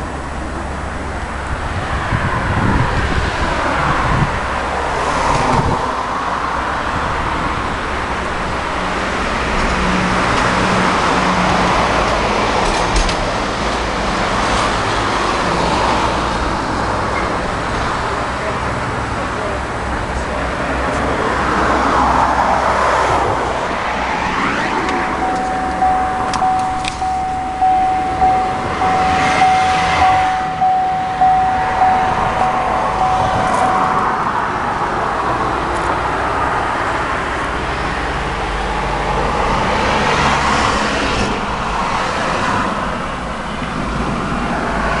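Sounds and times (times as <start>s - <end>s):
outdoor background noise: 0.0s - 45.0s
car instrument panel chime: 25.2s - 34.0s.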